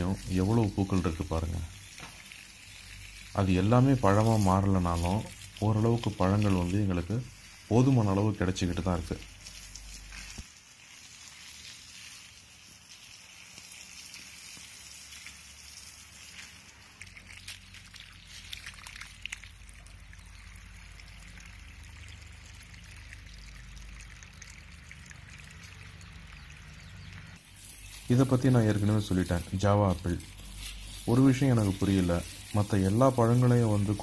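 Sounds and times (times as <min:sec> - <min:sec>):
light crackles: 0:00.0 - 0:21.6
hose water pouring onto soil: 0:00.0 - 0:34.0.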